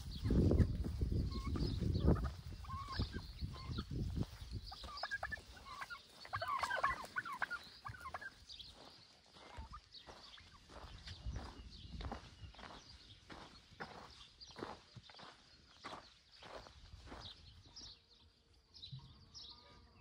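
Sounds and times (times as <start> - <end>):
turkeys gobbling: 0.0 - 8.5, 9.4 - 10.7.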